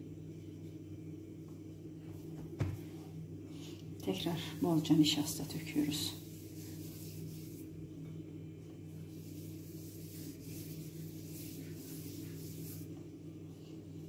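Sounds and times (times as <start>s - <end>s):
steady low hum: 0.0s - 14.0s
palm brushing dough: 4.0s - 14.0s.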